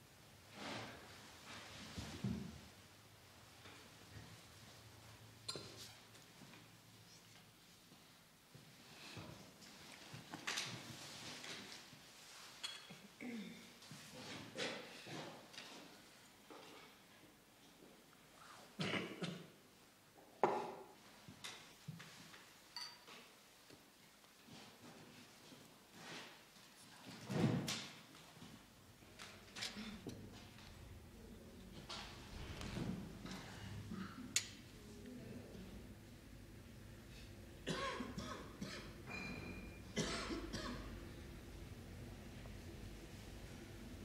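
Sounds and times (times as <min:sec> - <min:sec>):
dishes and cutlery clattering: 0:12.6 - 0:13.1, 0:22.7 - 0:23.3, 0:38.8 - 0:39.8
person coughing: 0:18.8 - 0:19.5, 0:37.6 - 0:39.0, 0:40.0 - 0:40.9
ringing clink of china: 0:39.1 - 0:39.8.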